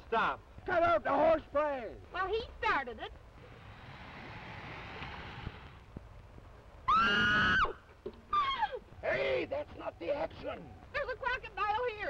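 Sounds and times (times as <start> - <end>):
faint rushing hiss: 0.0 - 12.0
woman screaming: 6.9 - 8.8.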